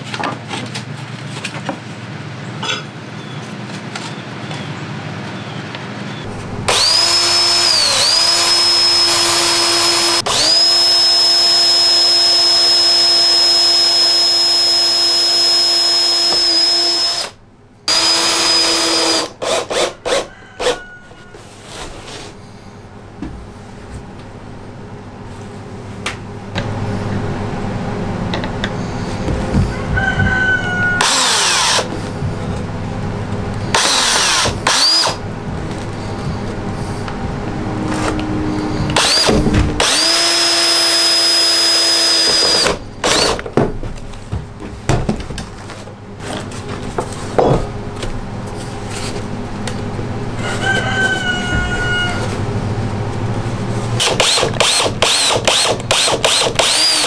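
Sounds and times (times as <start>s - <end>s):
power drill driving screws: 6.7s - 20.8s, 31.0s - 31.9s, 33.7s - 35.2s, 39.0s - 43.4s, 54.0s - 57.0s.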